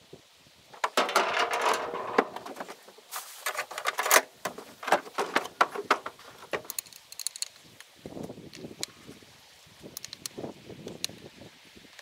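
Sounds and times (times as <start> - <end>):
rustle: 0.0 - 12.0
metal fittings clicking and knocking: 3.6 - 7.6.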